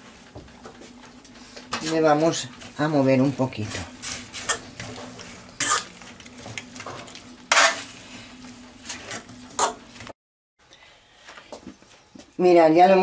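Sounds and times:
vegetables stirred in metal tray: 1.7s - 8.0s.

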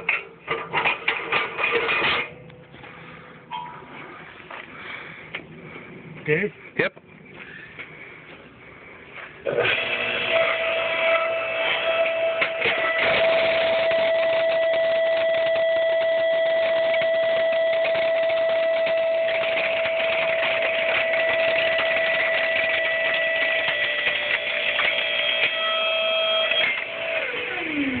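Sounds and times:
rattly mechanical noise: 0.0s - 3.1s, 9.0s - 28.0s
machine motor whining: 9.4s - 28.0s.

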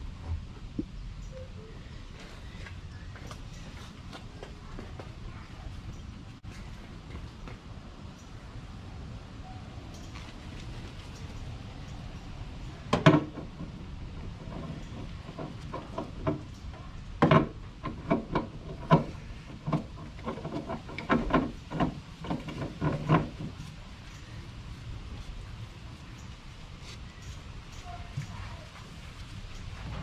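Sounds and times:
oil filter knocks and clicks: 12.9s - 23.6s.

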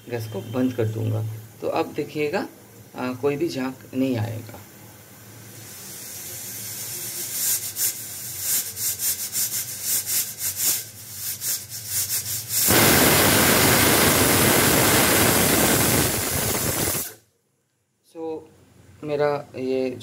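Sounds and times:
pressure cooker steam hissing: 5.4s - 17.2s.

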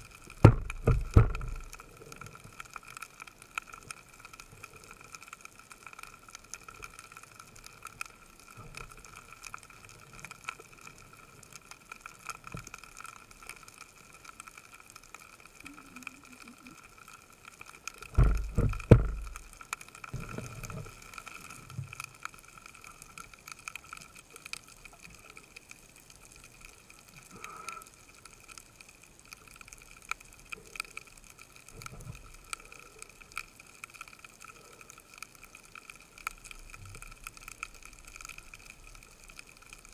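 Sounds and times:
underwater crackle of clicks: 0.0s - 39.9s
loud low thuds: 0.4s - 1.6s, 18.2s - 19.4s.

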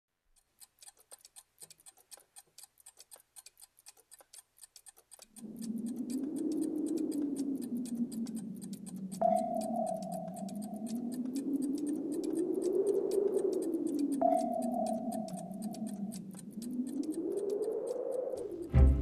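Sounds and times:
rapid clock-like ticking: 0.2s - 19.0s
low musical drone: 18.6s - 19.0s.

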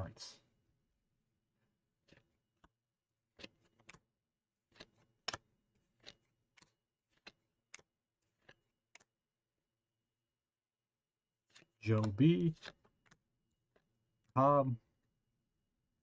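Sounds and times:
trading cards flipping clicks: 3.4s - 4.0s, 4.7s - 9.1s.

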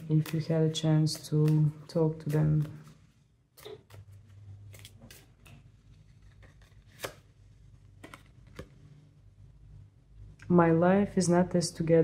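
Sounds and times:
cards being shuffled: 0.0s - 8.8s.

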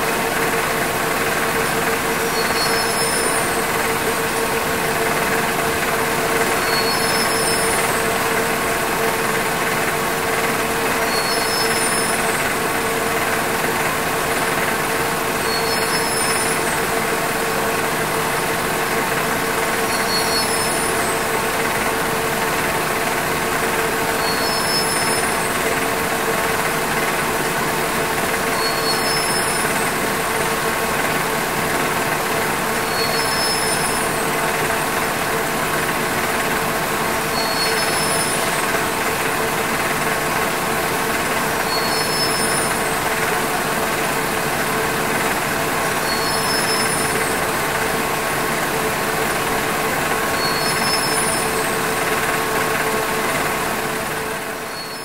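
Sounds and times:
faint high chirp: 2.3s - 3.5s, 6.6s - 7.8s, 11.0s - 12.3s, 15.4s - 16.6s, 19.9s - 21.0s, 24.2s - 25.4s, 28.6s - 29.8s, 32.9s - 34.0s, 37.3s - 38.4s, 41.7s - 42.8s, 46.0s - 47.2s, 50.3s - 51.6s, 54.7s - 55.0s.

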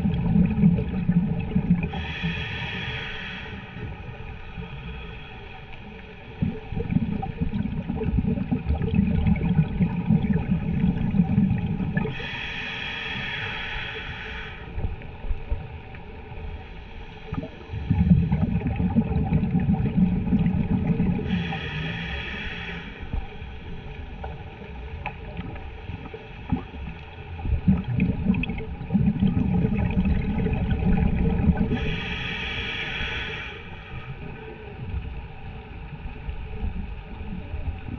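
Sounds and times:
diver breathing through regulator: 1.8s - 6.9s, 10.5s - 15.0s, 20.4s - 24.6s, 29.8s - 34.6s.

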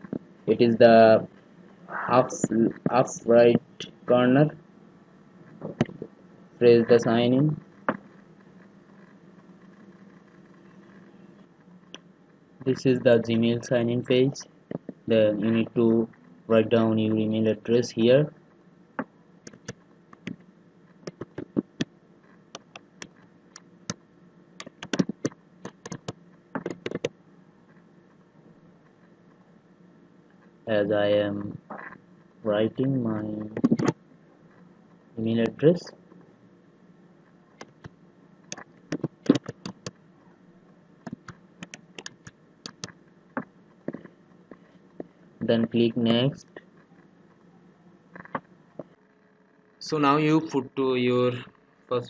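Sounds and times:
computer keyboard typing: 19.5s - 20.4s, 21.0s - 21.9s, 24.6s - 27.1s, 38.5s - 40.0s, 41.0s - 43.0s
keyboard key clicks: 38.5s - 39.9s.

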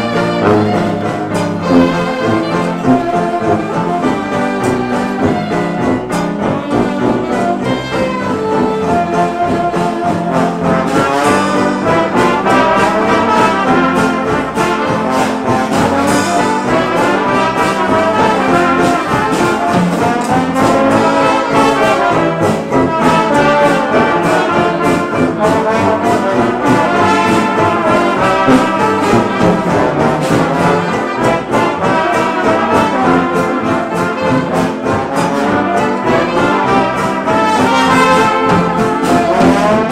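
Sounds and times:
drums: 0.0s - 39.9s
trombone: 0.0s - 39.9s
trumpet: 0.0s - 39.9s.

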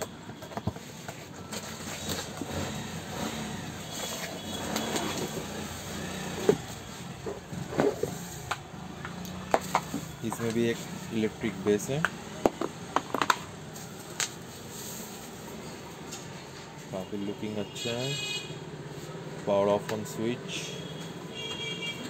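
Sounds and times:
sharp clicks and knocks: 11.6s - 13.5s.

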